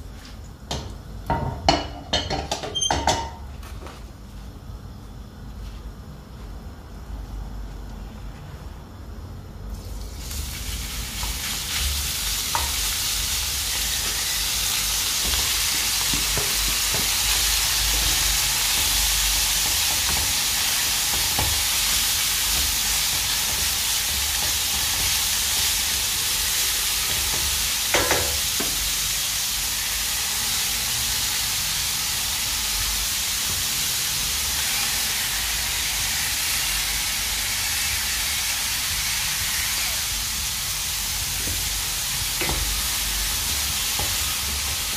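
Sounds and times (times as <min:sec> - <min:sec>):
food sizzling in a pan: 0:09.8 - 0:44.9.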